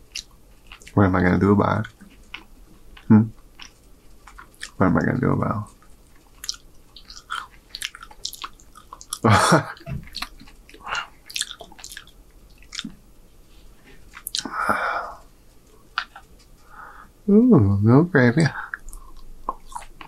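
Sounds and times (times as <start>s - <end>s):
man chewing wetly: 0.0s - 1.0s, 1.8s - 4.8s, 5.7s - 13.0s, 13.7s - 16.8s, 18.6s - 20.0s.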